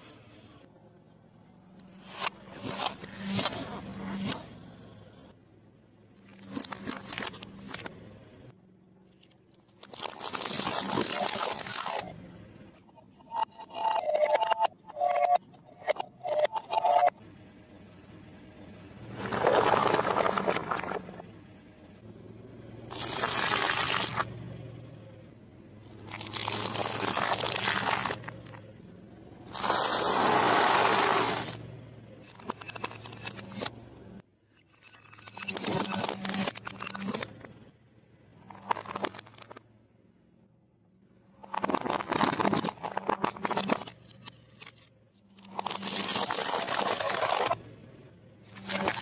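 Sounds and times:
car tyre crushing brittle objects: 6.2s - 7.9s, 9.0s - 12.1s, 19.1s - 21.2s, 22.9s - 24.3s, 25.8s - 28.6s, 29.4s - 31.6s, 38.4s - 39.7s, 41.4s - 47.6s, 48.5s - 49.0s
foil package crinkling under tyre: 9.7s - 12.0s, 25.8s - 28.6s, 41.5s - 44.7s, 45.4s - 47.6s.

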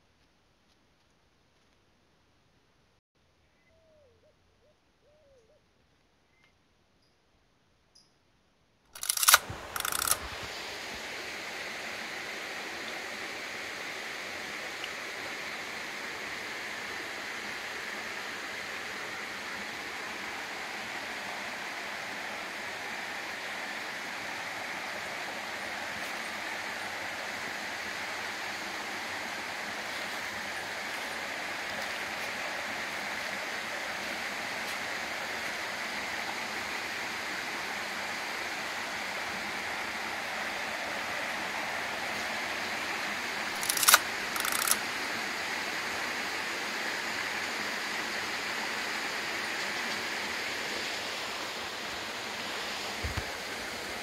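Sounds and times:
sharp clicks: 9.0s - 10.5s, 43.6s - 44.8s
steady hiss: 9.0s - 54.0s.

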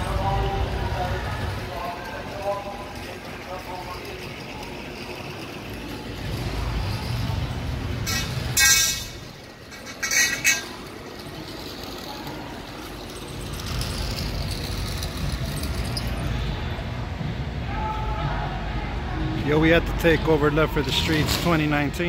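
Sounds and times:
vehicle engines rumbling: 0.0s - 22.0s.

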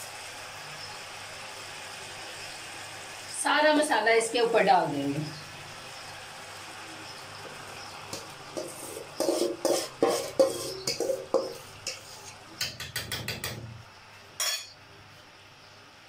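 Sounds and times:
metal spoon scraping metal bowl: 8.1s - 13.6s.

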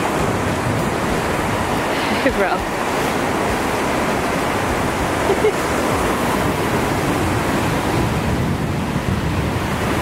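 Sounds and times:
ocean surf breaking on beach: 0.0s - 10.0s.

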